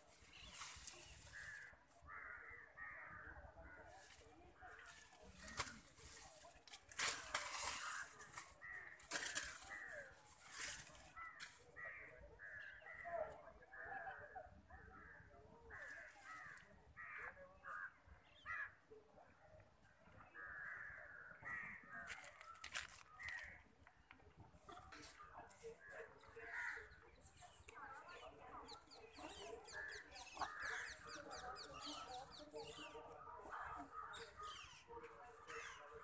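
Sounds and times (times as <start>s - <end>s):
leafy branches rustling and crackling: 0.0s - 2.0s, 4.0s - 11.9s.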